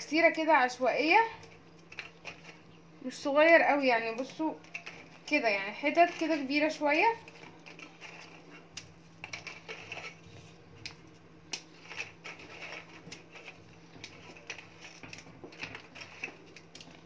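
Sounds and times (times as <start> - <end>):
biscuits snapping: 10.8 - 13.3.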